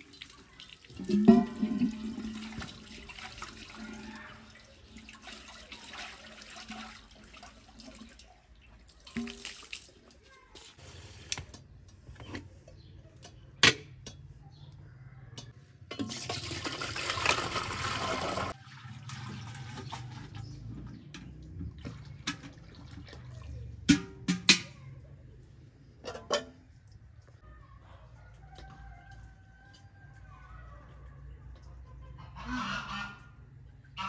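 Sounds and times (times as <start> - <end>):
liquid pouring into metal pot: 0.0 - 9.9, 15.9 - 20.5
metal lids and pots clanking: 1.0 - 2.8, 15.4 - 17.4, 23.8 - 24.8, 26.0 - 26.8.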